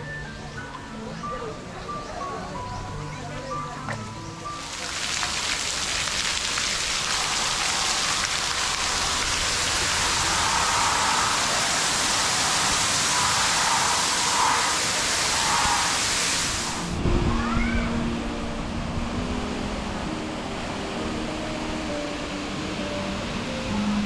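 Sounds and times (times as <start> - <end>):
water spray falling on pebbles: 4.6 - 17.0.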